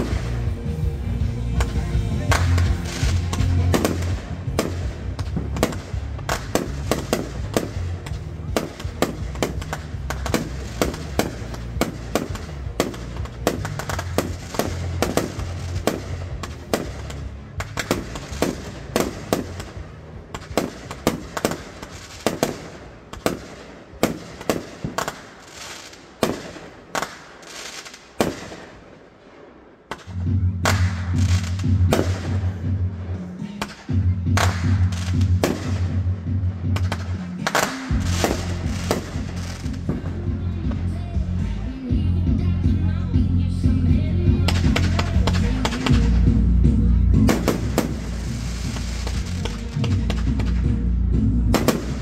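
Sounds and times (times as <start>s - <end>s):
fireworks bangs: 0.0s - 41.5s, 43.9s - 52.0s.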